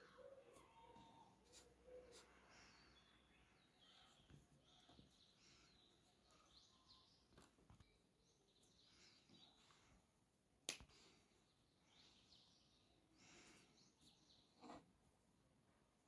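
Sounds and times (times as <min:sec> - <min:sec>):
faint bird chirps: 0:00.0 - 0:10.0.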